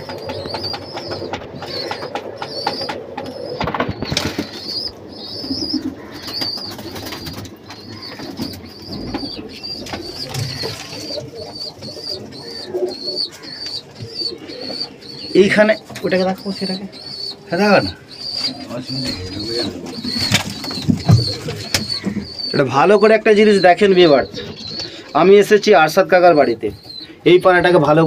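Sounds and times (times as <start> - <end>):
wing flaps and shuffling: 0.0 - 4.9, 5.5 - 12.1, 18.4 - 22.5
pigeons cooing: 0.0 - 28.0.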